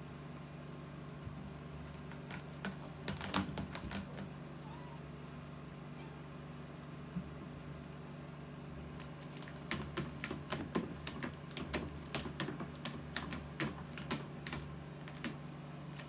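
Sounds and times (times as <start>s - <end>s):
cat claws clicking on rope: 8.9s - 16.0s.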